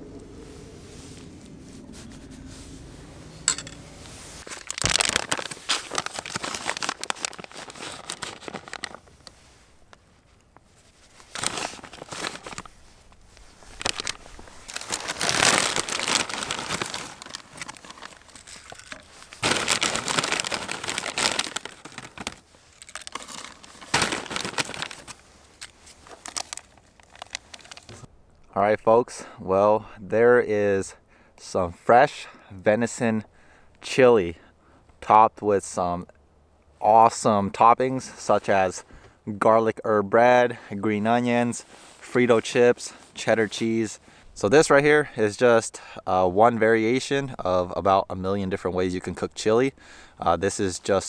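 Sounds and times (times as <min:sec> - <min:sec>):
plastic bags crinkling: 0:03.5 - 0:10.0, 0:10.8 - 0:28.1.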